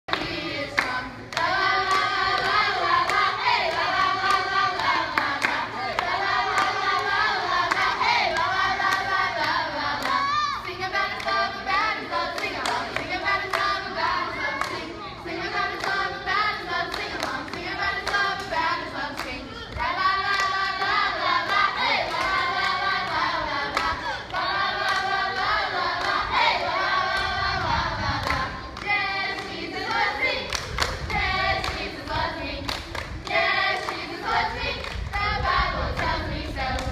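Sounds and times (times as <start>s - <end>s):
hand clapping: 0.1s - 7.1s
group singing together: 0.1s - 36.9s.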